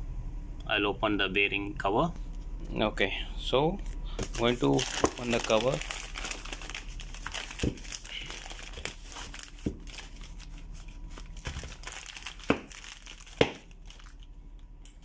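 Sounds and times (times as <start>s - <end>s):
plastic bag crinkling: 4.2s - 14.4s.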